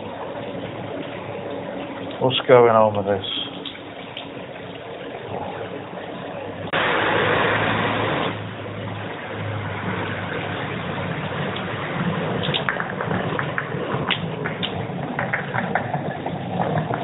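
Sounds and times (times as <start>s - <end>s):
motorway traffic rushing: 6.8s - 17.0s.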